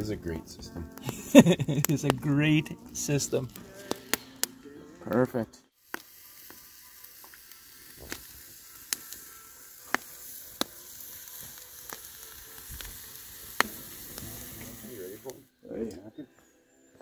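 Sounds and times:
fire crackling and popping: 0.0 - 15.5
meat sizzling on a grill: 1.0 - 4.5, 5.8 - 15.5.

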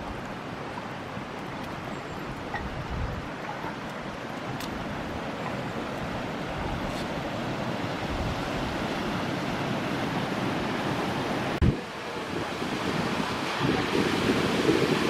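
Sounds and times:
stream water rushing: 0.0 - 15.0.

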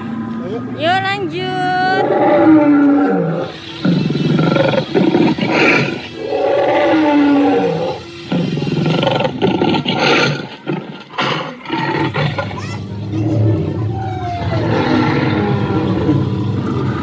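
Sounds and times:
recorded dinosaur roars and growls: 2.0 - 17.0.

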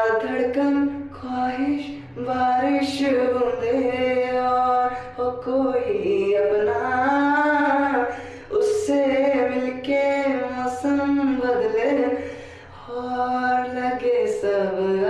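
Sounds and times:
man singing unaccompanied: 5.4 - 12.2.

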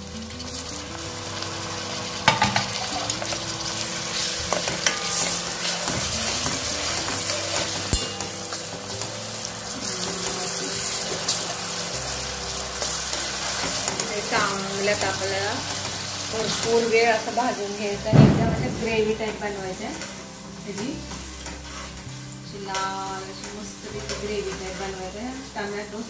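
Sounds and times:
vegetables sizzling in hot oil: 0.0 - 26.0
ladle knocking pan: 2.2 - 3.6, 4.3 - 9.2.

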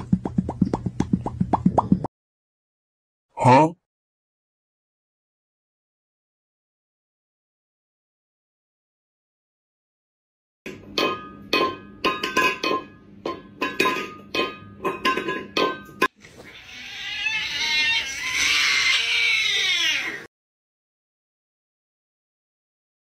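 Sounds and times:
cat screaming yowl: 16.4 - 20.3.

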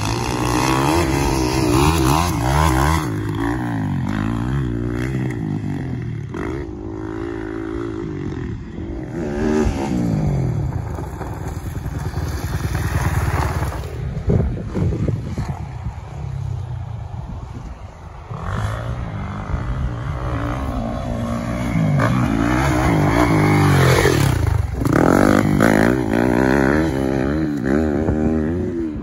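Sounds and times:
dirt bike engine revving: 0.0 - 14.0, 18.3 - 29.0.

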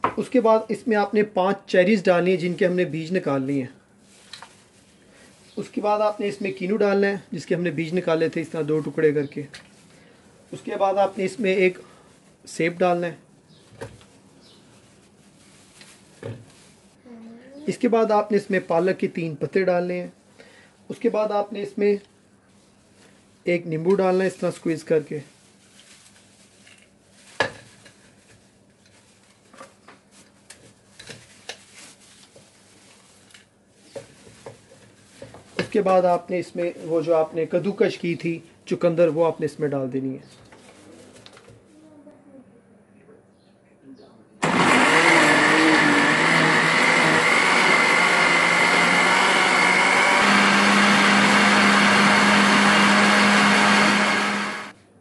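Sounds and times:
blender whirring: 44.4 - 54.7.

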